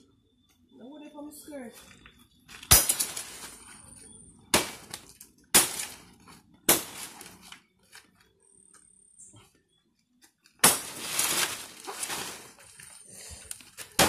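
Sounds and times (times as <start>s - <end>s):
leaves rustling and clattering: 4.6s - 8.2s, 10.6s - 14.0s.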